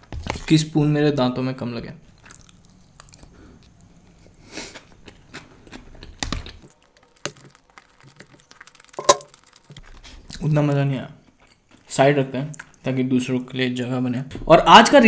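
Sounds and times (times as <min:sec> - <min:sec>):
wet chewing: 0:02.1 - 0:10.5
spoon clicks and taps: 0:09.0 - 0:09.3.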